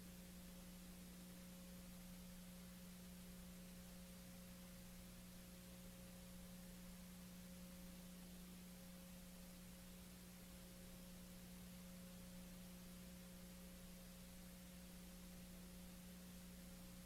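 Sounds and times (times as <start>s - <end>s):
faint low hum with hiss: 0.0s - 17.0s.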